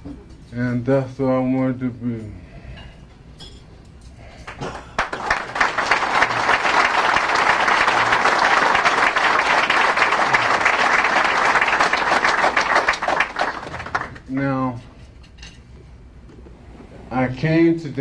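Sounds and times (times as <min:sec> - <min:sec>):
audience applauding: 0:04.5 - 0:14.3.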